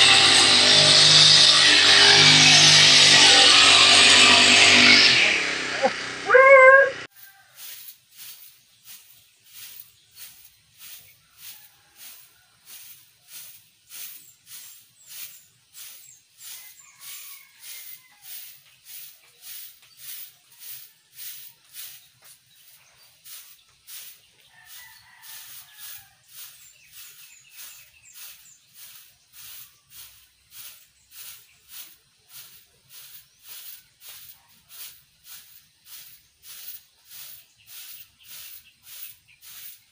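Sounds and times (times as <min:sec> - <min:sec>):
broom sweeping grass: 0:07.1 - 0:39.9
distant rooster crowing: 0:16.4 - 0:18.6, 0:24.4 - 0:27.8.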